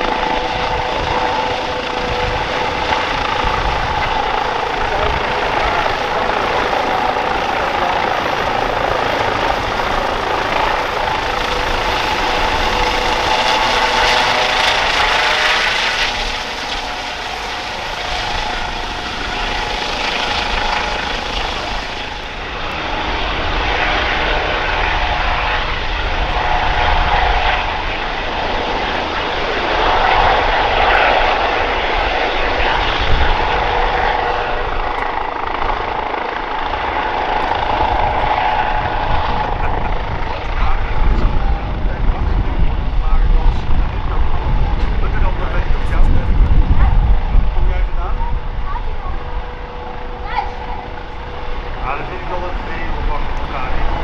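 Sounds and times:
helicopter hovering: 0.0 - 54.0.

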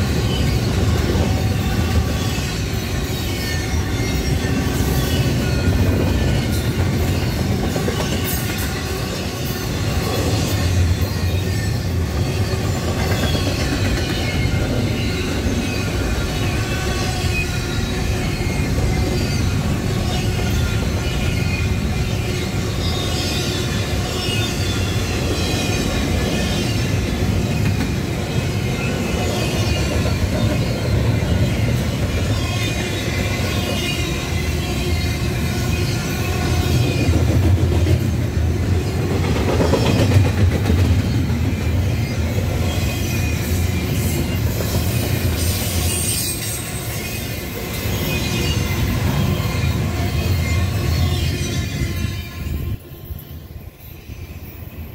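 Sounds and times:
high wheel squeal: 0.0 - 37.3, 40.9 - 54.9
freight train rumbling past: 0.0 - 54.9.

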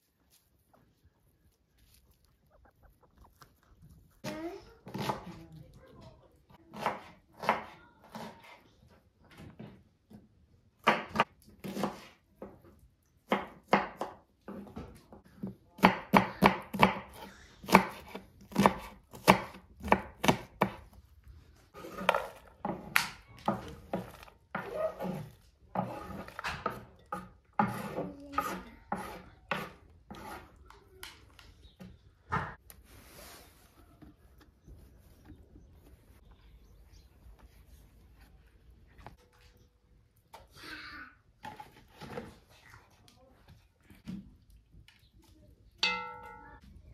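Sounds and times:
knife chopping on wooden board: 10.8 - 12.5, 13.3 - 14.8, 15.4 - 20.9, 21.8 - 30.5.

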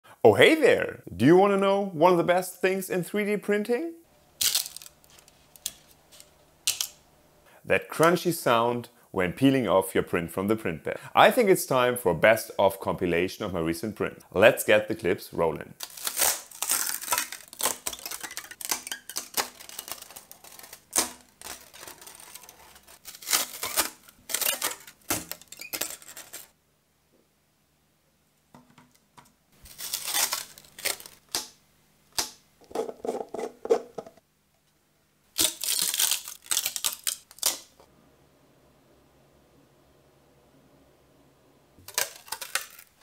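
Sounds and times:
plastic prints crackling off build sheet: 15.8 - 26.6, 29.6 - 31.6, 35.4 - 37.9, 41.8 - 43.0.

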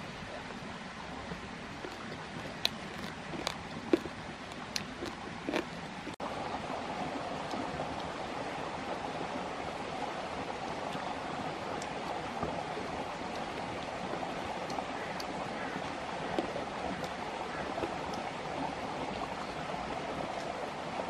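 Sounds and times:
mouth smacks while chewing: 1.8 - 6.2.

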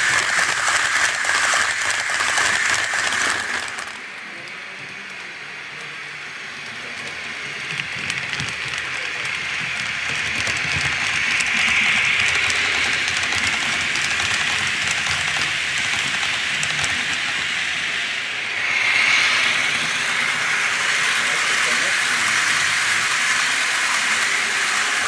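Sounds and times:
model steam train hiss: 0.0 - 5.2, 6.4 - 25.0
wheels clicking over track: 0.0 - 6.0, 6.6 - 17.6.

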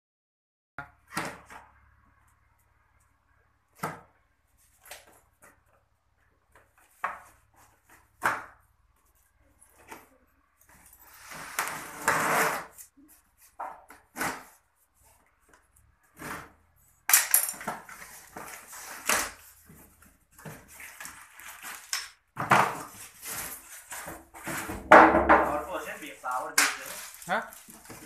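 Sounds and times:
cardboard rustling and scraping: 6.5 - 8.2, 17.6 - 24.9, 25.5 - 28.0.

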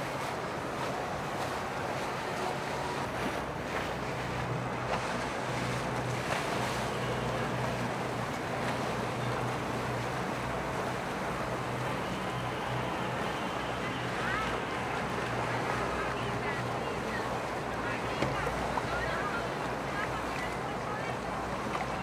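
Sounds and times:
boat engine humming: 0.0 - 22.0
water wash: 0.0 - 22.0.

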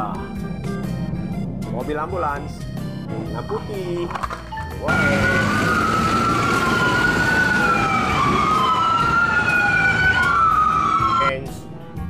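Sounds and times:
street traffic: 0.0 - 12.0
ambulance siren wailing: 4.8 - 11.6.

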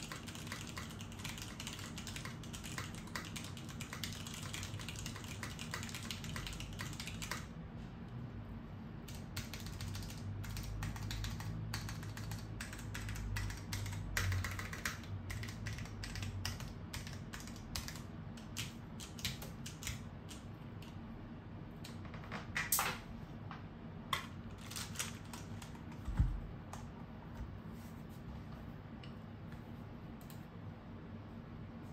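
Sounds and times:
mechanical keyboard typing: 0.0 - 7.5, 9.1 - 21.0, 24.1 - 26.1.

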